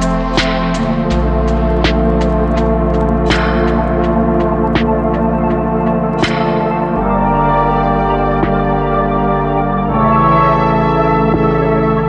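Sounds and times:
electronic music with drum beat: 0.0s - 12.0s.

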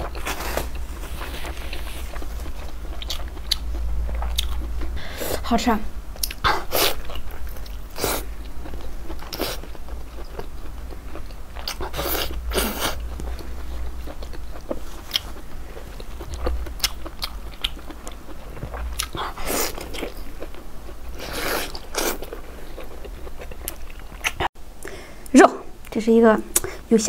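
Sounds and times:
person biting and chewing: 6.2s - 24.5s.

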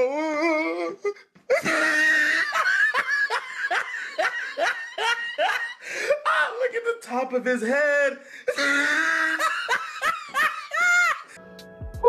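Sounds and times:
person laughing hard: 1.5s - 6.2s, 8.5s - 11.4s.

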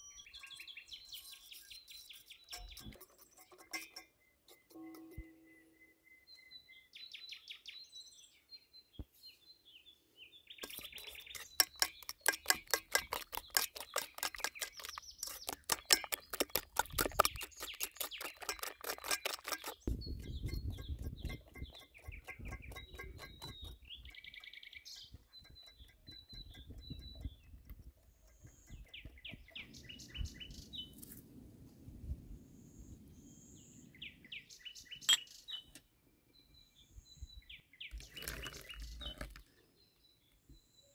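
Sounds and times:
small birds chirping: 0.0s - 31.1s, 32.5s - 40.9s
whisk beating in steel bowl: 10.6s - 23.8s.

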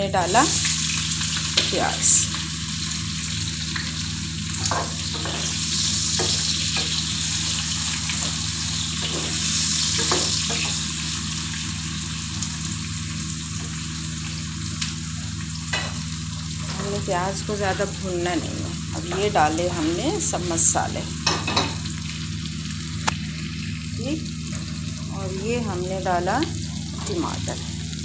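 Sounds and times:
onions sizzling in hot oil: 0.0s - 28.0s
spatula scraping and knocking pan: 4.6s - 7.1s.

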